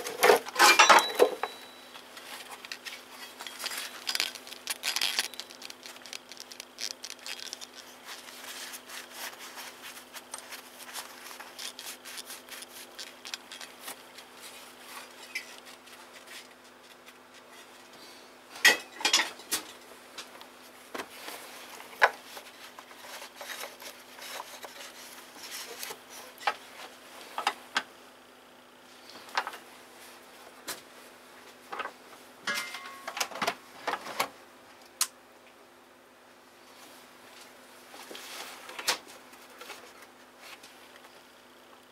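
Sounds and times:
steady low hum: 0:00.0 - 0:41.9
metal tools clinking: 0:00.6 - 0:01.8, 0:03.2 - 0:05.7.

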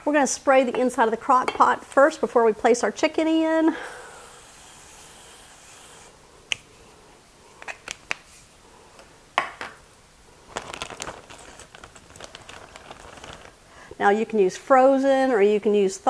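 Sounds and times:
cooking spray hissing: 0:03.8 - 0:06.2
plastic bag crinkling: 0:10.4 - 0:13.6.

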